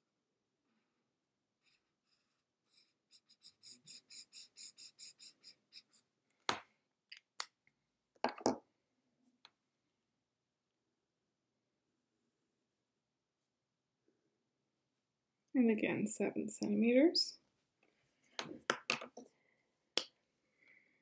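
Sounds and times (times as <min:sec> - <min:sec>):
highlighter scratching on paper: 0:01.6 - 0:06.1
pen clicks and knocks: 0:08.2 - 0:08.6.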